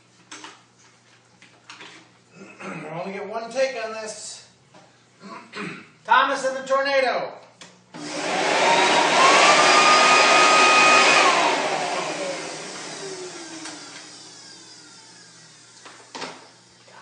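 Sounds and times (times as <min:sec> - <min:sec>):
electric blower motor whine: 0:07.9 - 0:17.0.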